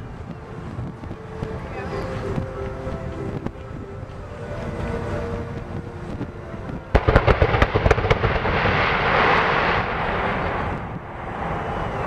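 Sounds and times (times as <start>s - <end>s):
fireworks cracking: 6.9s - 11.4s
fireworks crackling hiss: 6.9s - 12.0s.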